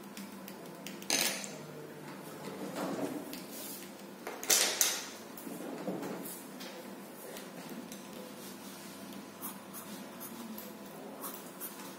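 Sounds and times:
pencils clattering on a desk: 0.9 - 1.6, 4.3 - 5.1.

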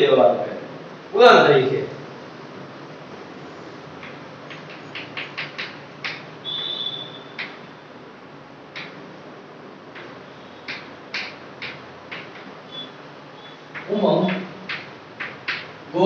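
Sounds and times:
chalk tapping on chalkboard: 4.0 - 7.6, 8.7 - 9.0, 9.9 - 12.9, 13.6 - 15.8
chalk squeak: 12.7 - 13.7.

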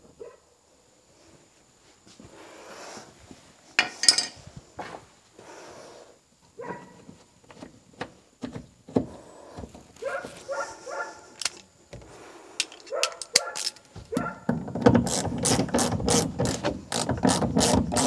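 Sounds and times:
metal hand tools clinking: 3.8 - 4.4
carpet rubbing under hands: 9.1 - 11.3
dog yelping: 10.0 - 11.3, 12.9 - 14.5.

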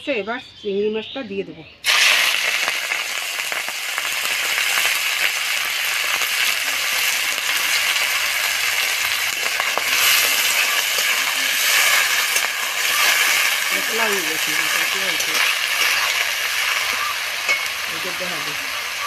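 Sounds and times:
shrimp sizzling in oil: 1.8 - 19.0
spatula stirring: 9.4 - 18.2.

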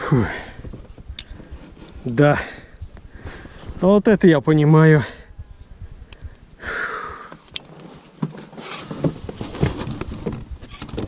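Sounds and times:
heavy exhale: 6.6 - 7.4.

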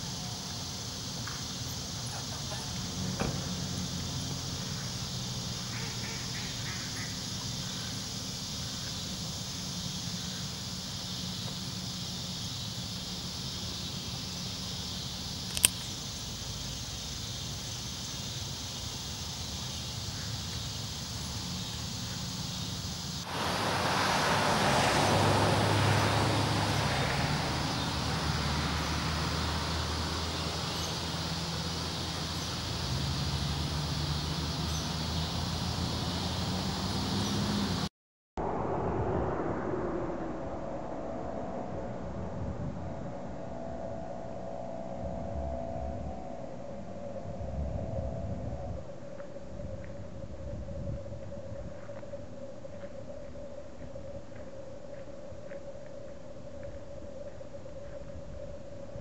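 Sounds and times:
insect chorus: 0.0 - 37.9, 38.9 - 59.0
rushing noise: 0.0 - 50.5
sharp click: 15.5 - 15.9.

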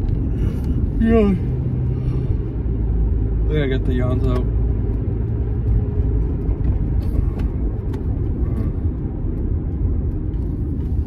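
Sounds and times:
car cabin road rumble: 0.0 - 11.0.

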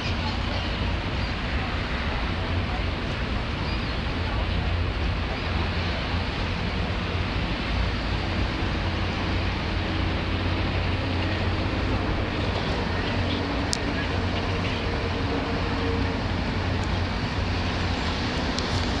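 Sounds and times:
traffic rumble on bridge: 0.0 - 19.0.

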